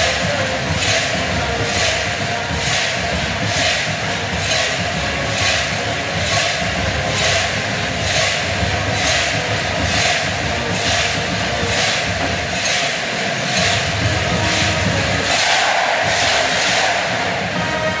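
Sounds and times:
marching band: 0:00.0 - 0:18.0
metallic percussion crash: 0:00.0 - 0:18.0
stadium crowd din: 0:00.0 - 0:18.0.

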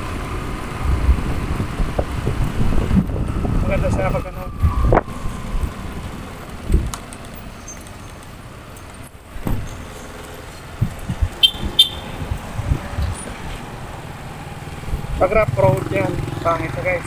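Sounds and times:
wind and road rush: 0:00.0 - 0:17.0.

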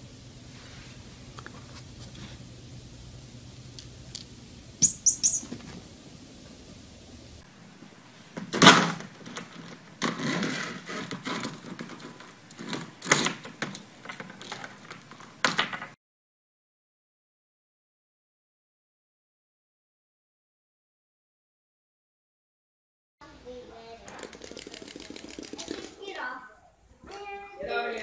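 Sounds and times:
toy squeaks: 0:04.8 - 0:05.5.

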